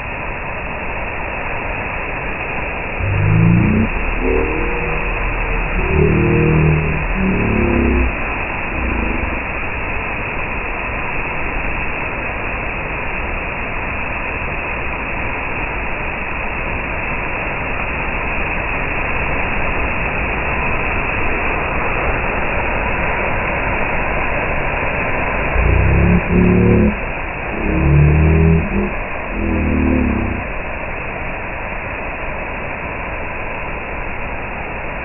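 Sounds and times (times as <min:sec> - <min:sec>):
low rumbling bursts: 0:03.0 - 0:09.9, 0:25.5 - 0:30.6.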